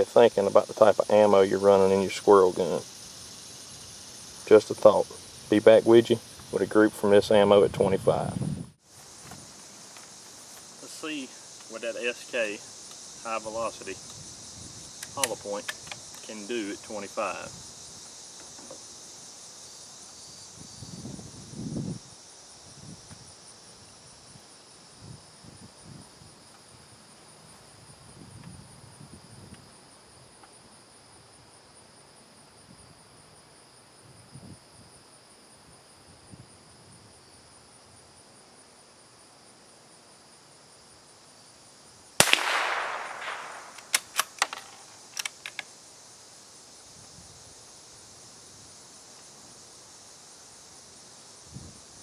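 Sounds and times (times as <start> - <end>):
insects trilling: 0.0 - 52.0
rifle shot: 42.2 - 44.7
rifle bolt clicks: 42.2 - 45.6.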